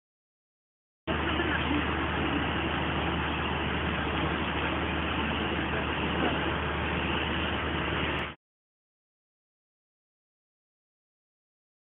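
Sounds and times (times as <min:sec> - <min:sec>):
truck engine idling: 0:01.1 - 0:08.4.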